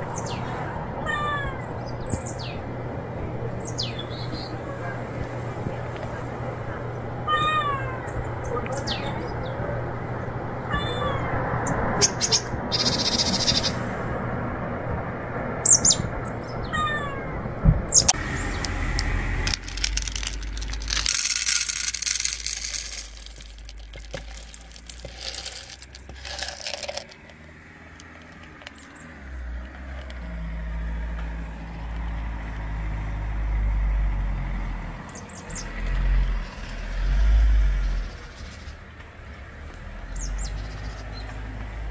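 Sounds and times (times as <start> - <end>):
birds chirping: 0.0 - 2.8, 3.4 - 5.4, 7.2 - 13.9, 15.6 - 17.1, 17.8 - 29.9, 40.0 - 41.7
low engine rumble: 0.0 - 41.9
cat meowing plaintively: 1.0 - 1.6, 16.7 - 17.4.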